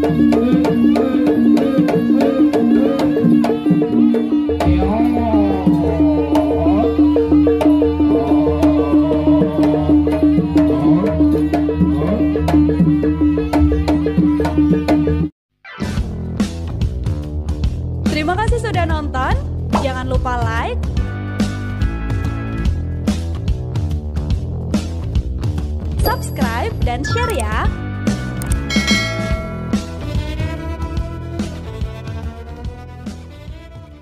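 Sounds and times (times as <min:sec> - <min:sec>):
gamelan drums and metal strikes: 0:26.0 - 0:27.8, 0:28.4 - 0:30.3
wavering melody line: 0:26.1 - 0:27.8, 0:28.4 - 0:30.2.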